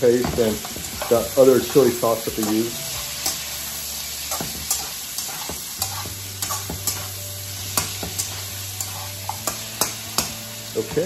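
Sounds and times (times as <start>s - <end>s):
food sizzling in oil: 0.0s - 11.0s
metal spatula scraping pan: 0.0s - 11.0s.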